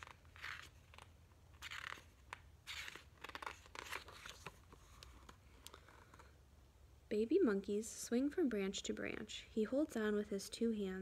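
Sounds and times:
book pages turning: 0:00.0 - 0:06.4.

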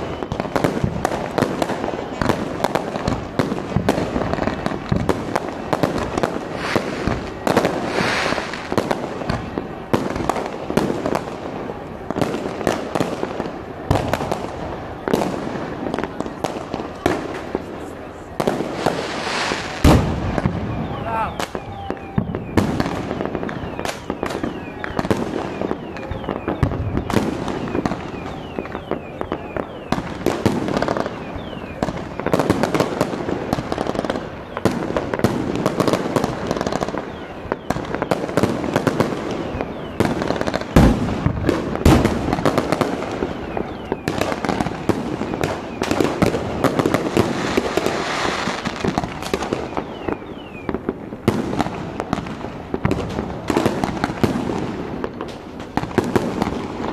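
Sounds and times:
heavy firework booms: 0:00.0 - 0:37.1, 0:37.7 - 0:49.8
fireworks cracking and banging: 0:00.0 - 0:56.9
falling whistles: 0:05.3 - 0:09.8, 0:18.8 - 0:30.0, 0:30.8 - 0:32.4, 0:43.1 - 0:46.0, 0:49.4 - 0:50.7.

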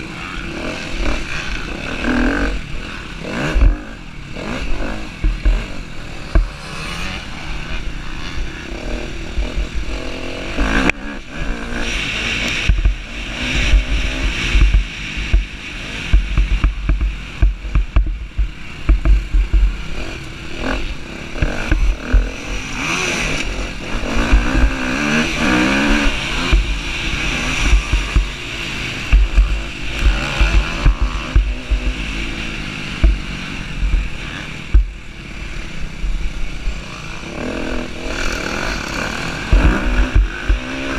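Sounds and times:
motorcycle engine revving: 0:00.0 - 0:40.9
wind buffeting microphone: 0:21.4 - 0:35.1.

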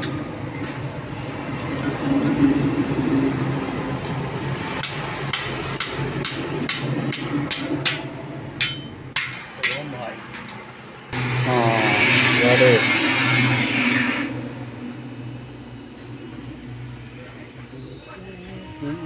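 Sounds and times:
hammer strikes: 0:04.8 - 0:10.6.

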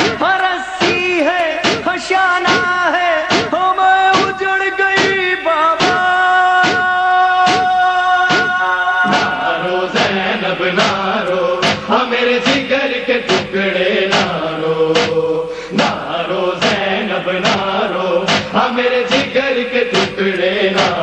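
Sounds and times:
steady sharp beat: 0:00.0 - 0:21.0
voices chanting in chorus: 0:05.8 - 0:21.0.

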